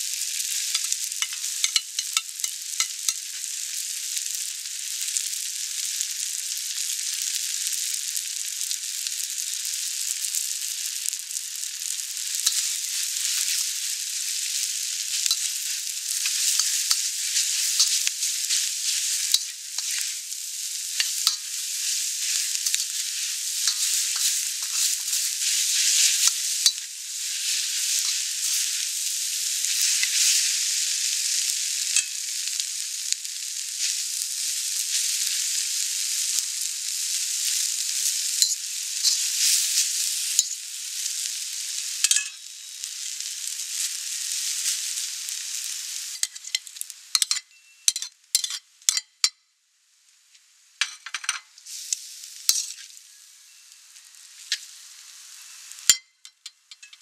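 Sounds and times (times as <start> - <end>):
vegetables sizzling in a wok: 0.0 - 57.0
utensil scraping and clacking: 0.8 - 3.2, 23.6 - 25.2.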